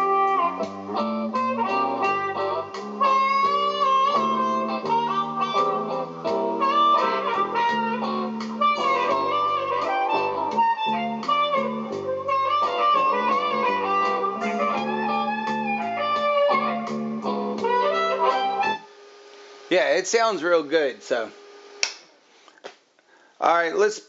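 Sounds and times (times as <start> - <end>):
music from speakers: 0.0 - 18.8.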